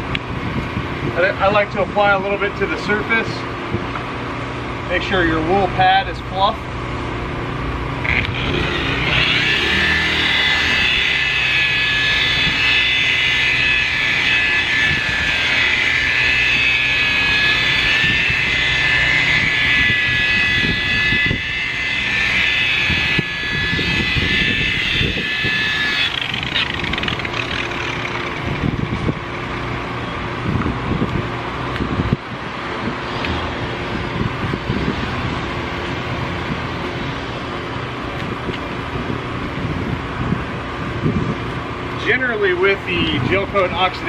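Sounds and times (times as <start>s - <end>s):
rotary polisher motor whine: 8.0s - 30.2s.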